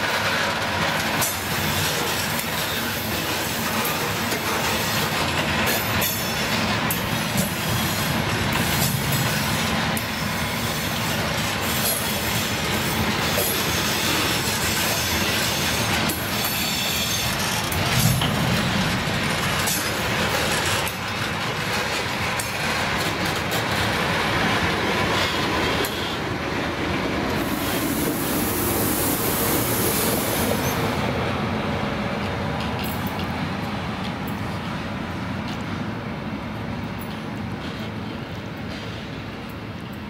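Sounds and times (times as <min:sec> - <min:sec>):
wheels clacking over rail joints: 0:00.0 - 0:31.2
train wheels rumbling on rail: 0:00.0 - 0:40.0.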